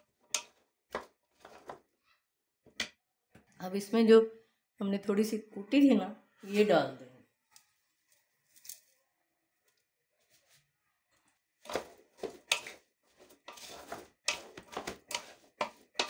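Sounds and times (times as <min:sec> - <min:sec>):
spatula scraping a metal pot: 0:00.0 - 0:01.9, 0:11.6 - 0:16.0.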